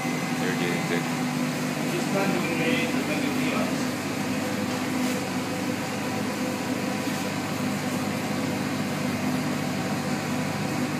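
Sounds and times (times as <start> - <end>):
machine hum: 0.0 - 10.9
ventilation fan noise: 0.0 - 10.9.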